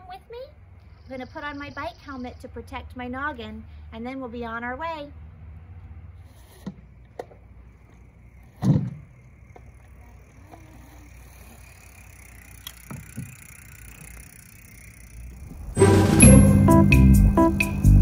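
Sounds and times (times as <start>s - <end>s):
music: 15.7s - 18.0s.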